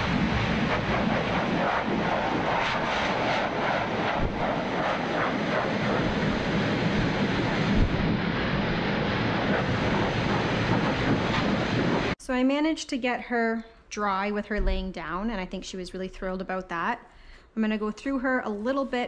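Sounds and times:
dog grooming dryer blowing: 0.0 - 12.2.

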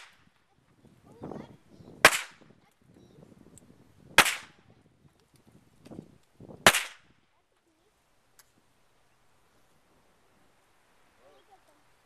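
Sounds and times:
rifle shots: 2.0 - 2.4, 4.2 - 4.6, 6.6 - 7.1.

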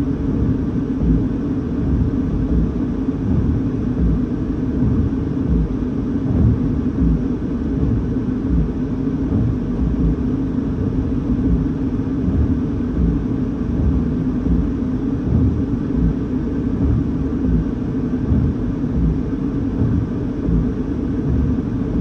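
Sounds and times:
car idling from inside cabin: 0.0 - 22.0.

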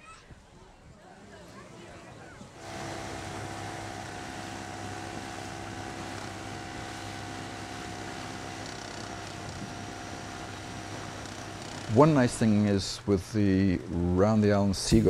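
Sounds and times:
outboard motor humming: 2.5 - 14.2.

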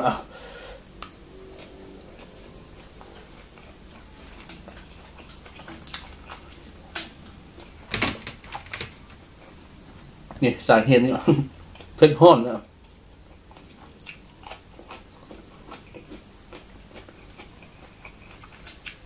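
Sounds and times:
person chewing food: 0.8 - 7.9, 11.6 - 12.0, 12.8 - 19.0.

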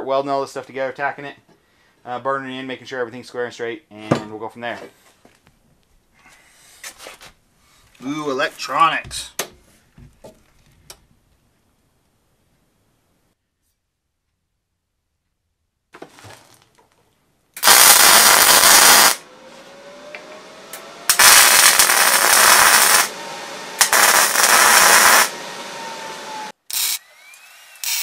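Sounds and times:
welding arc sizzling: 17.6 - 19.2, 21.1 - 27.0, 27.8 - 28.0.

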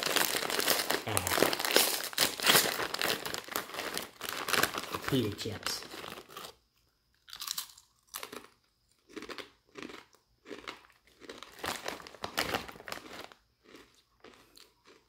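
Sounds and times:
chips crunching in mouth: 0.0 - 6.6, 7.2 - 15.0
foil snack bag crinkling: 0.0 - 6.6, 11.1 - 15.0.

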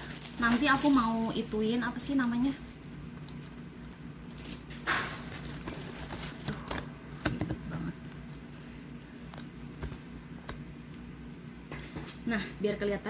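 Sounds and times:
plastic bags rustling: 0.0 - 8.6.

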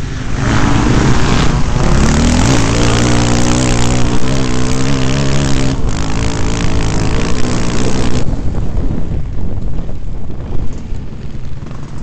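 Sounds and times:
dirt bike engine revving: 0.0 - 8.3
wind on microphone: 0.0 - 12.0.

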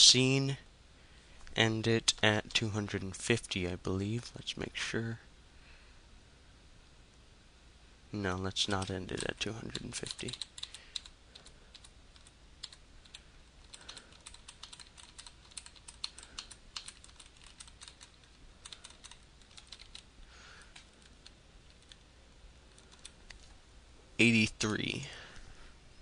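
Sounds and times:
low steady hum: 0.0 - 26.0
keyboard keys clicking: 8.7 - 20.0, 20.7 - 22.0, 22.7 - 23.5.

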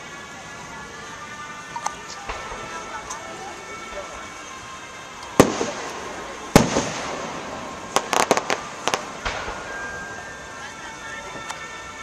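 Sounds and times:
firework crackling pops: 0.0 - 12.0
firework shells booming: 2.1 - 12.0.

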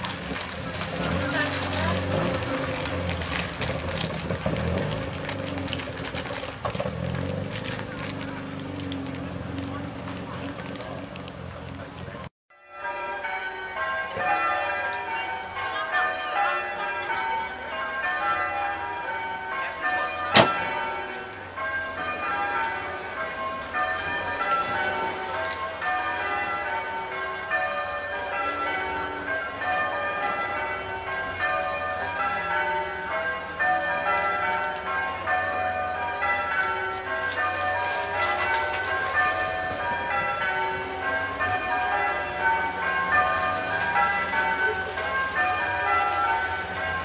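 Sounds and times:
bells chiming: 12.5 - 47.0.

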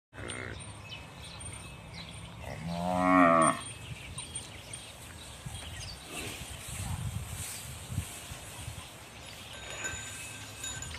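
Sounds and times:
cow mooing: 2.4 - 3.7.

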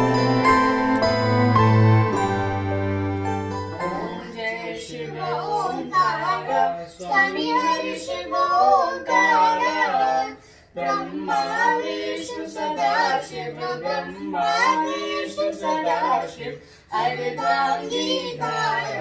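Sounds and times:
woman and girl singing a hymn: 3.8 - 19.0.

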